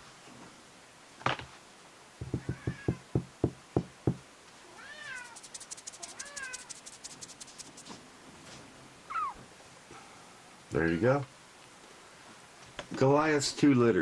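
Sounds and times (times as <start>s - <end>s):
kittens mewing: 4.8s - 6.7s
rapid faint high ticking: 5.1s - 8.0s.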